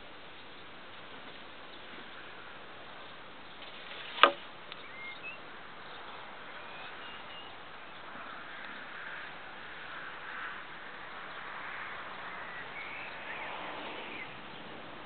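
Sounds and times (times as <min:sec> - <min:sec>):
faint outdoor background: 0:00.0 - 0:15.0
sharp click: 0:04.2 - 0:04.8.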